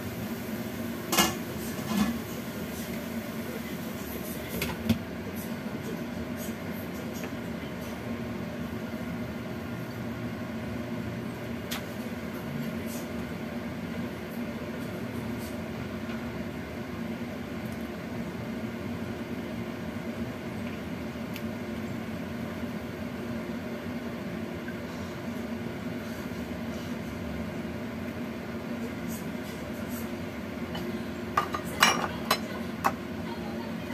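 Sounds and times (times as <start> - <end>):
fan motor hum: 0.0 - 33.9
gas burner hum: 0.0 - 33.9.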